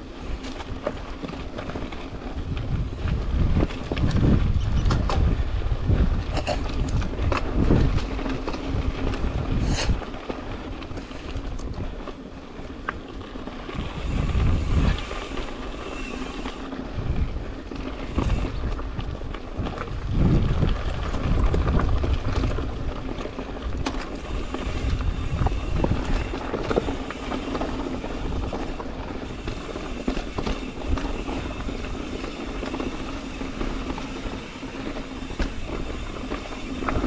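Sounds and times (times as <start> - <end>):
tyres on dirt and rock trail: 0.0 - 37.0
wind buffeting microphone: 0.0 - 37.0
bike clicking and knocking: 0.3 - 5.4, 6.0 - 37.0.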